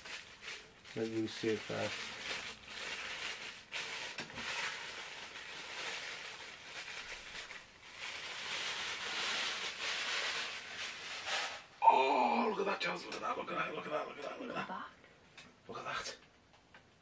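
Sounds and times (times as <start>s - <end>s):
plastic bag rustling and crinkling: 0.0s - 11.8s.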